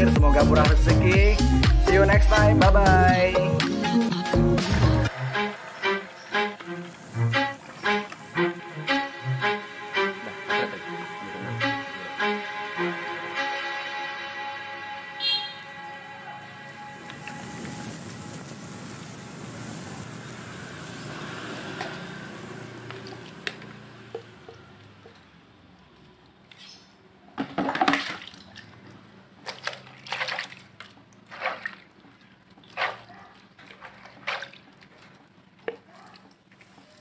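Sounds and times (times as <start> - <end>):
water pouring and splashing: 4.7 - 8.9, 16.6 - 26.7, 27.4 - 37.0
short water splashes and sloshes: 6.3 - 8.4, 20.9 - 24.6, 27.4 - 37.0.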